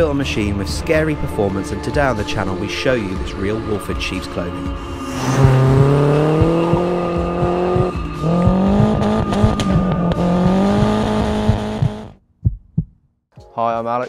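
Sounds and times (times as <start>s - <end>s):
car engine accelerating hard: 5.0s - 12.1s.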